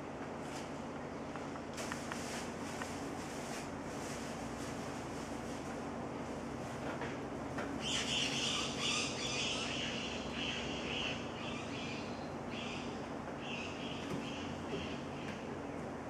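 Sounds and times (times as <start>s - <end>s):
steady low hum: 0.0s - 16.0s
bird giving raspy calls: 7.8s - 15.3s.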